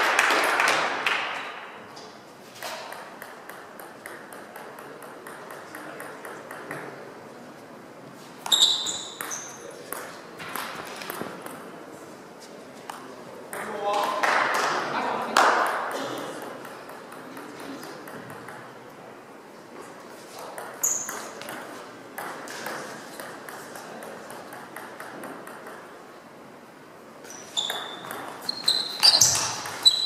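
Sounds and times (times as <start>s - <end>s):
table tennis ball clicking: 2.9s - 6.9s, 16.4s - 18.7s, 22.2s - 25.9s
shoes squeaking on floor: 8.2s - 9.8s, 20.8s - 21.4s, 27.2s - 30.0s.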